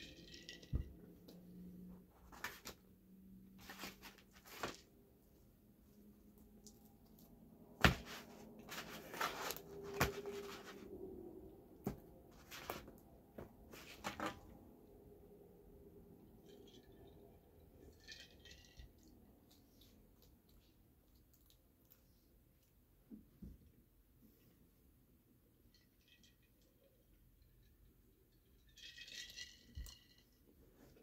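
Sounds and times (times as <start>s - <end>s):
ice rattling in glass jar: 0.0s - 0.8s, 16.4s - 19.1s, 28.4s - 30.4s.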